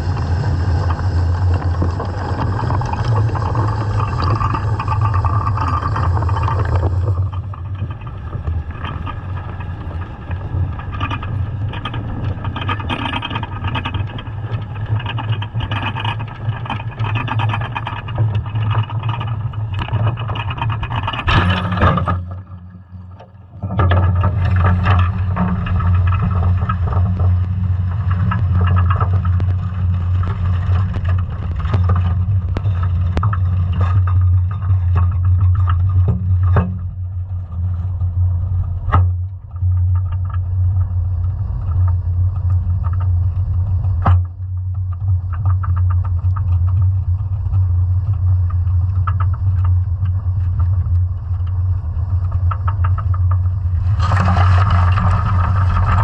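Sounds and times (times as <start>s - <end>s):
dredge rattling and scraping: 0.0s - 56.0s
steady low underwater hum: 0.0s - 56.0s.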